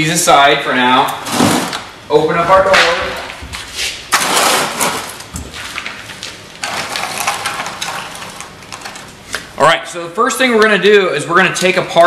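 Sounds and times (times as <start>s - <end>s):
rustling and handling noise: 2.4s - 9.6s.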